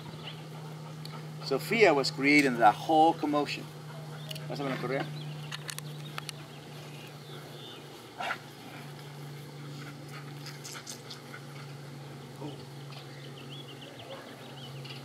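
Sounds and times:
low steady hum: 0.0 - 15.0
dogs moving about: 8.2 - 11.8.

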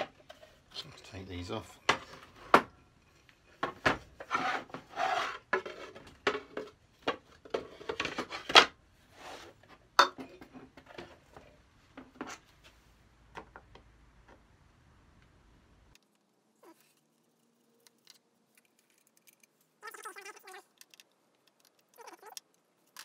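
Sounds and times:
wood and metal parts clattering: 3.5 - 8.8
scraping on wood: 3.6 - 6.7.

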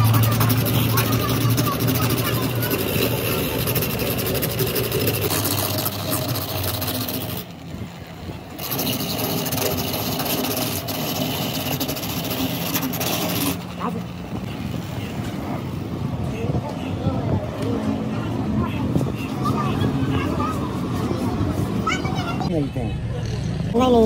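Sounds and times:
grinder buffing rubber: 0.0 - 7.5, 8.6 - 14.1.

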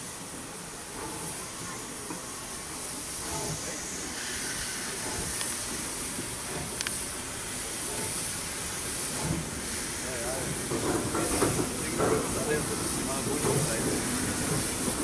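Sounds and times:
steam locomotive hissing: 0.0 - 15.0.

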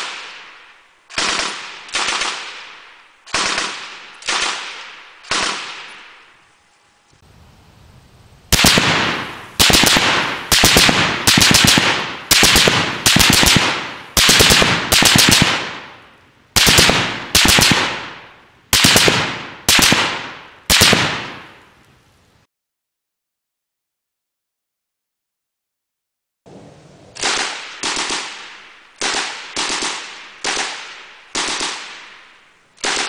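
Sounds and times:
machine gun bursts with echo: 8.5 - 16.0, 16.6 - 21.5.

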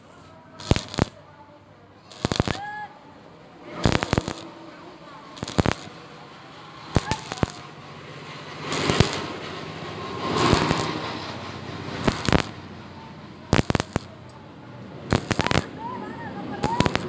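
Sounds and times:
welding arc crackling and hissing: 0.6 - 1.2, 2.1 - 2.8, 3.8 - 4.6, 5.3 - 6.2, 6.9 - 7.8, 8.6 - 11.4, 12.0 - 12.6, 13.5 - 14.2, 15.1 - 15.8, 16.5 - 17.0
sharp welding pops: 0.6 - 1.3, 2.1 - 2.8, 3.8 - 4.6, 5.4 - 6.0, 7.0 - 7.7, 8.7 - 9.4, 10.3 - 11.0, 12.0 - 12.6, 13.5 - 14.3, 15.1 - 15.8, 16.6 - 17.0.

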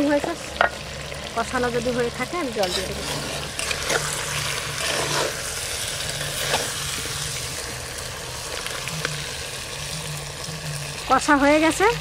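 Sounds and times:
food sizzling in oil: 0.0 - 12.0
metal ladle scraping pot: 2.3 - 7.8.

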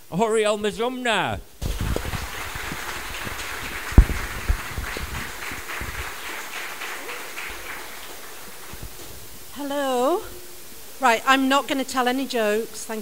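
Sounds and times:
audience applauding: 1.6 - 9.3
low thumps: 3.6 - 6.0.

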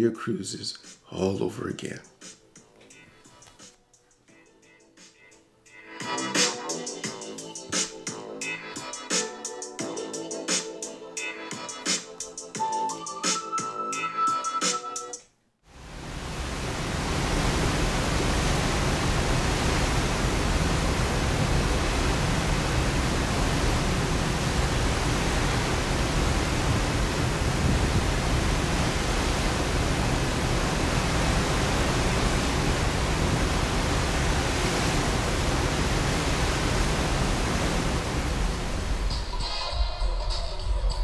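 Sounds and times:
open sea rushing: 15.8 - 39.3.

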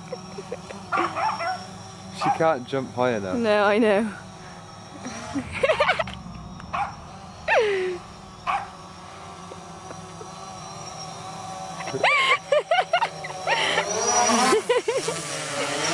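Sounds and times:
drone propellers humming: 0.0 - 15.9
small dog yelping and barking: 0.9 - 2.4
dog howling: 8.4 - 8.9.

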